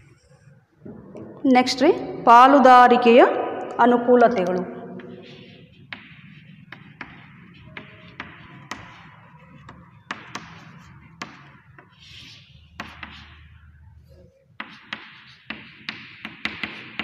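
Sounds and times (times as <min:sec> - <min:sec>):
chalk tapping on chalkboard: 0:04.4 - 0:17.0
chalk scratching on board: 0:05.0 - 0:17.0.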